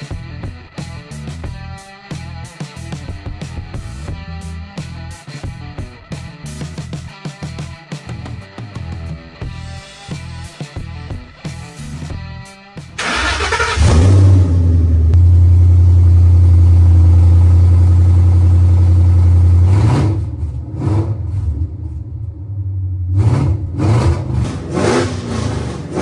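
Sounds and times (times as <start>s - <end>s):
car engine revving: 13.0s - 26.0s.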